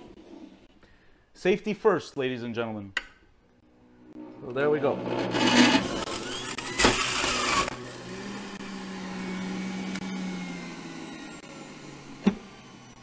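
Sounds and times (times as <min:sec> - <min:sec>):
fruit grinding in juicer: 0:04.1 - 0:13.0
juicer motor humming: 0:04.1 - 0:13.0.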